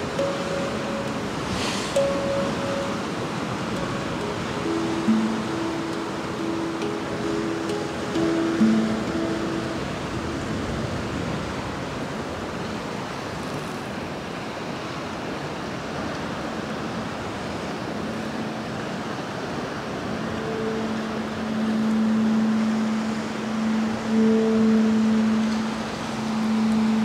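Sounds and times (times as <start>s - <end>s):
low sustained tone: 0.0s - 11.4s, 19.6s - 27.0s
sea surf rushing: 0.0s - 27.0s.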